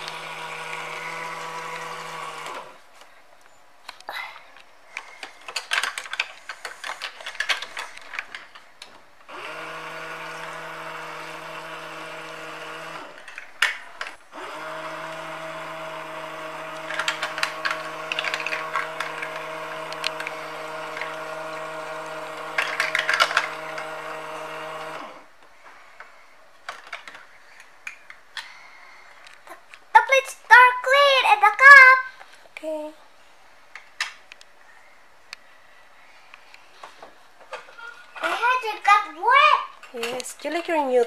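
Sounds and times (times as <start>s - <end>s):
small water pump humming: 0.0s - 2.9s, 9.3s - 13.3s, 14.2s - 25.7s
plastic dishes clattering: 5.1s - 8.7s, 22.5s - 24.0s, 26.6s - 28.5s.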